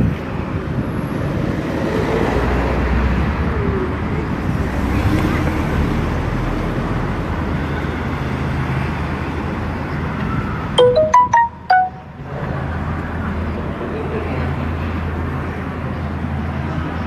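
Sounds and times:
street traffic noise: 0.0s - 17.0s
short electronic jingle: 10.8s - 12.2s.

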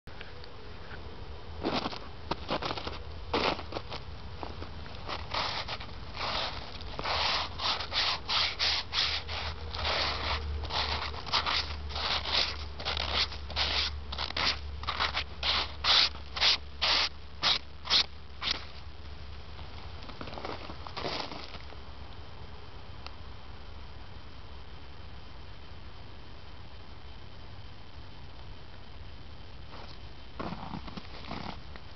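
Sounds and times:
brushing snow off stone: 5.0s - 18.8s.

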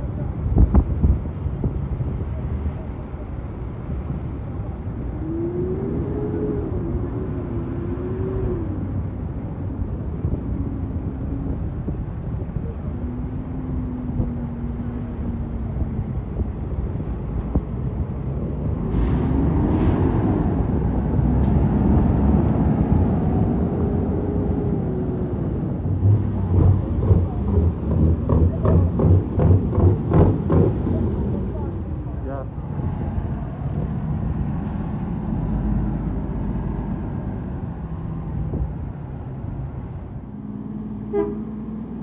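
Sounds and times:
heavy truck engine running: 25.3s - 42.0s.

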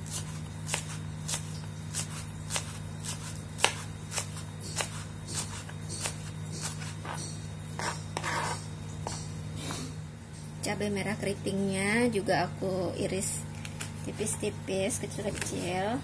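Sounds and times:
knife chopping on cutting board: 0.0s - 9.9s
steady low hum: 0.0s - 16.0s.

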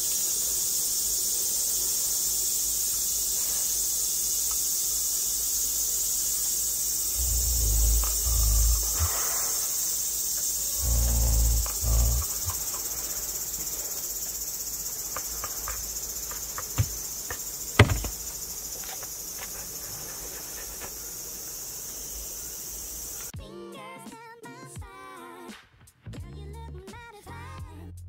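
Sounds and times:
steady high-pitched hiss: 0.0s - 23.3s
muffled low bumps: 7.2s - 9.1s.

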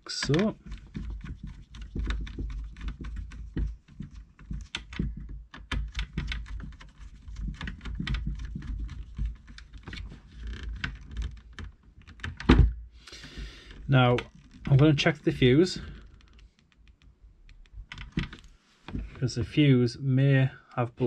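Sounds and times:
dull handling bumps: 0.1s - 6.8s.

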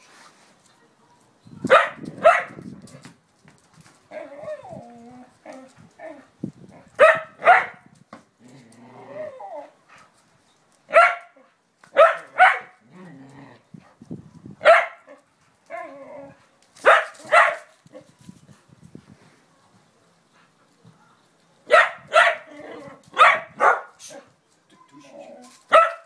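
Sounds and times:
dog barking: 1.7s - 2.6s, 7.0s - 7.8s, 10.9s - 11.3s, 12.0s - 12.8s, 14.6s - 15.1s, 16.8s - 17.7s, 21.7s - 22.5s, 23.2s - 23.9s, 25.7s - 26.0s.

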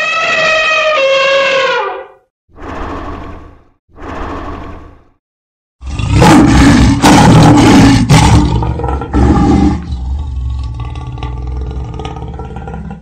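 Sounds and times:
lion roaring: 5.8s - 13.0s.

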